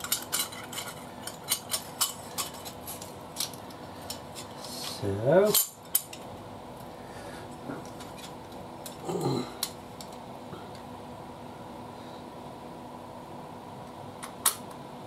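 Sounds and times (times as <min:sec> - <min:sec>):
person humming: 0:09.0 - 0:09.6.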